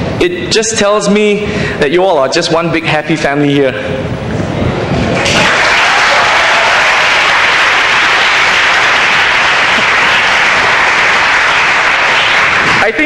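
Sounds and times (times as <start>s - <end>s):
audience applauding: 5.1s - 13.0s.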